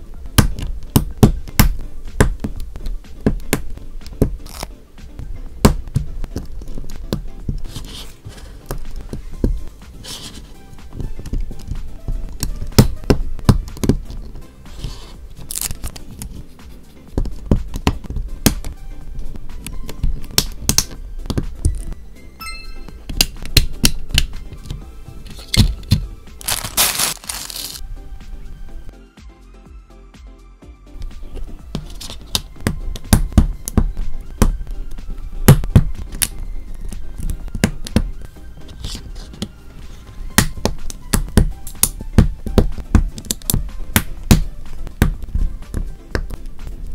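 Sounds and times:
background music: 0.0 - 46.9
plastic parts rustling: 25.2 - 27.8.

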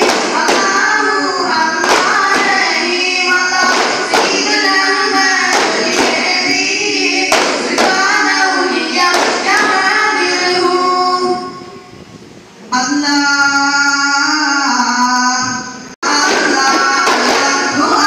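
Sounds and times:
frame drum beats: 0.0 - 10.0, 16.1 - 18.0
group singing devotional song: 0.0 - 11.9, 14.2 - 18.0.

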